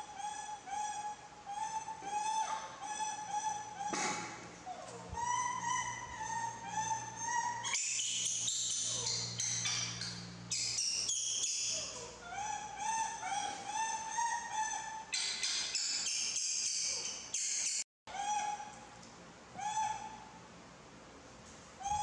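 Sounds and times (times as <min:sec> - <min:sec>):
monkeys whimpering: 0:00.0 - 0:04.0, 0:04.6 - 0:10.0, 0:10.6 - 0:16.0, 0:18.1 - 0:18.8, 0:19.6 - 0:20.3.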